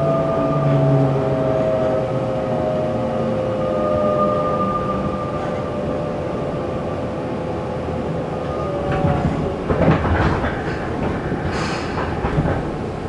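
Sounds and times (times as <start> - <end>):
train running gear rumbling: 0.0 - 13.0
wheels clattering over track joints: 8.9 - 13.0.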